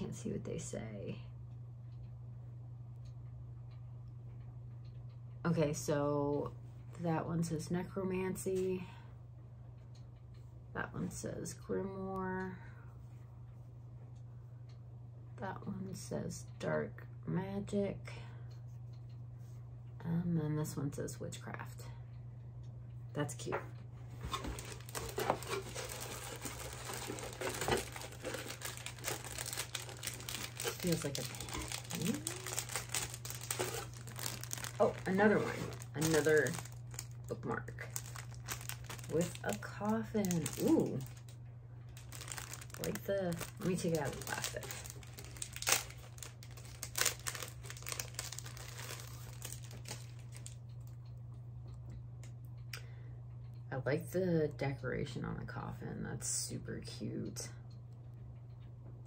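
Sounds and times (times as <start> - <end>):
steady low hum: 0.0 - 59.0
plastic wrapping rustling: 24.1 - 50.6
plastic packaging crinkling: 24.2 - 50.6.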